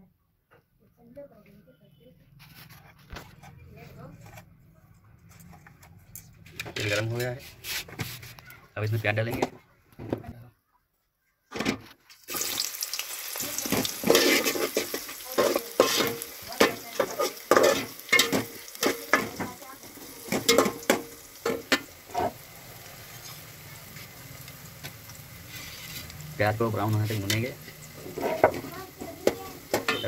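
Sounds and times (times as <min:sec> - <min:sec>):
onions sizzling in hot oil: 0:12.2 - 0:30.0
ladle scraping a pot: 0:13.7 - 0:19.3, 0:25.4 - 0:26.2, 0:28.0 - 0:28.7.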